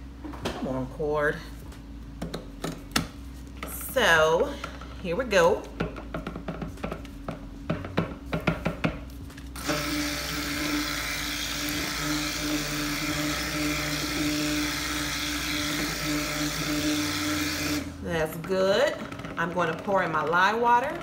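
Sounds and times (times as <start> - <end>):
stick blender whining: 9.6 - 21.0.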